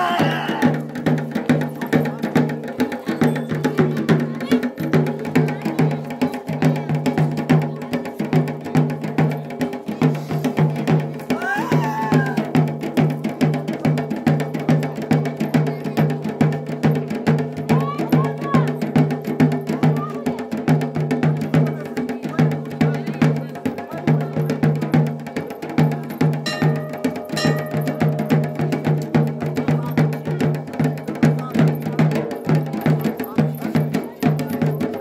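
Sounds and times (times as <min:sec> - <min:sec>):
person calling out: 0:00.0 - 0:00.8
low drum beat: 0:00.0 - 0:35.0
sharp drum strokes: 0:00.0 - 0:35.0.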